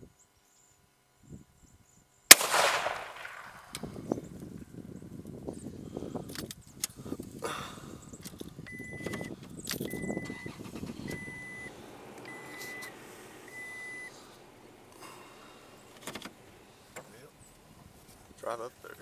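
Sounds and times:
short electronic beeps: 0:08.7 - 0:09.3, 0:09.9 - 0:11.7, 0:13.5 - 0:14.1.

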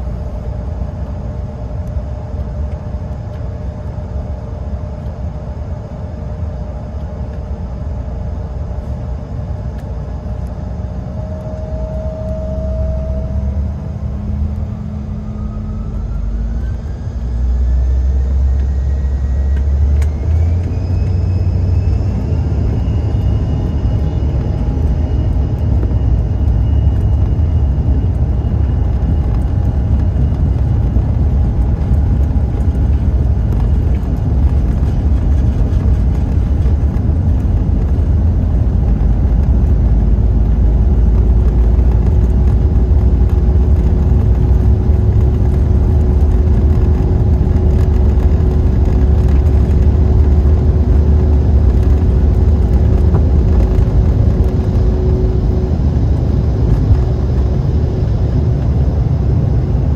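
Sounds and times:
jet engines deep rumble: 0:00.0 - 0:59.9
steady engine hum: 0:00.0 - 0:59.9
wheels rolling on runway: 0:19.5 - 0:57.8.

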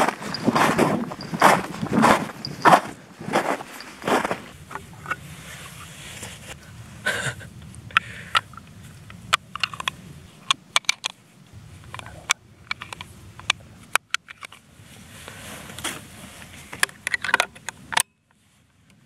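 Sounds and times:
crunchy footstep-like noises: 0:00.0 - 0:06.6
metal cartridges clicking: 0:09.3 - 0:11.2, 0:11.9 - 0:14.6.

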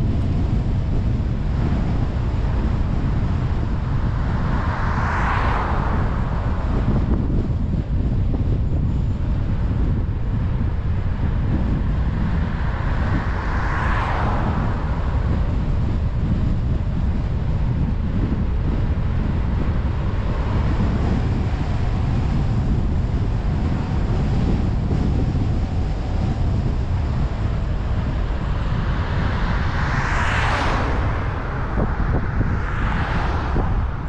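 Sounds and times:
car rumbling on highway: 0:00.0 - 0:34.0
wind buffeting microphone: 0:00.0 - 0:34.0.

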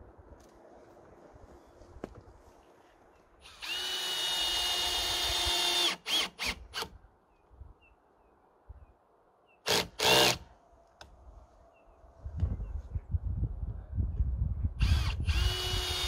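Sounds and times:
cordless drill drilling into wood: 0:03.4 - 0:06.9, 0:09.7 - 0:10.4, 0:14.8 - 0:16.0.

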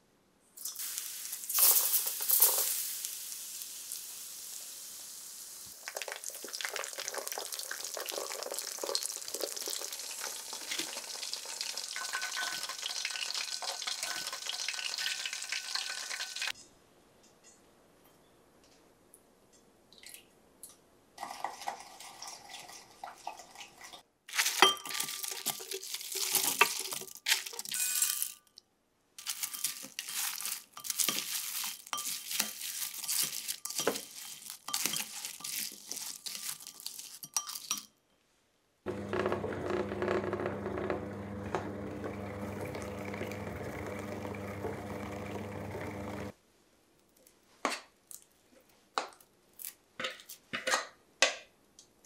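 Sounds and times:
motor hum of a kneading machine: 0:38.9 - 0:46.3.

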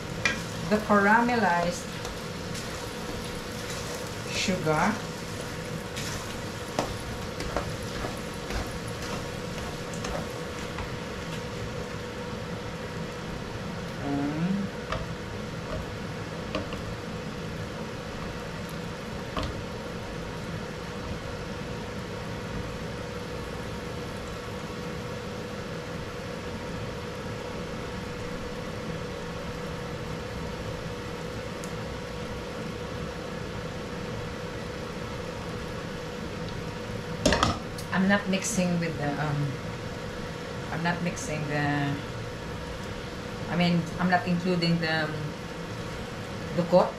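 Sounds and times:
sizzling hiss in hot pan: 0:00.0 - 0:11.8
steady hum: 0:00.0 - 0:46.9.

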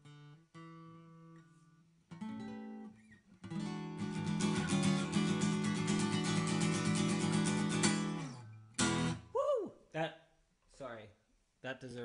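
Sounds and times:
acoustic guitar chord strumming: 0:00.0 - 0:09.3
acoustic guitar single notes: 0:00.0 - 0:09.4.

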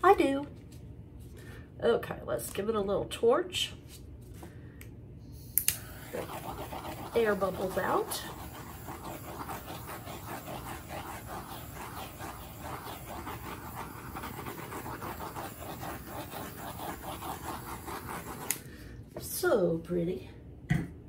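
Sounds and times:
torch flame hissing: 0:05.4 - 0:18.7.

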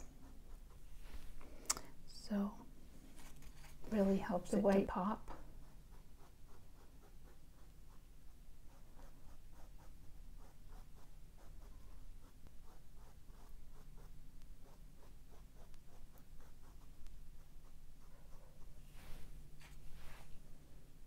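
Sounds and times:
paintbrush strokes on canvas: 0:00.0 - 0:01.6, 0:03.0 - 0:20.6
low room hum: 0:00.0 - 0:21.0.

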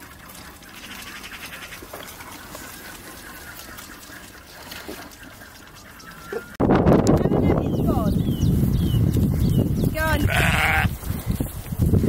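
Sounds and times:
lambs slurping and sucking: 0:00.0 - 0:06.6, 0:09.0 - 0:12.0.

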